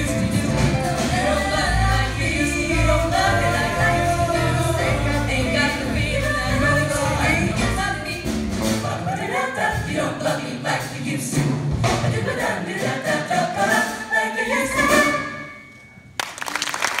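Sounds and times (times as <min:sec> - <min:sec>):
a cappella group singing: 0:00.0 - 0:15.4
audience applause: 0:16.2 - 0:17.0.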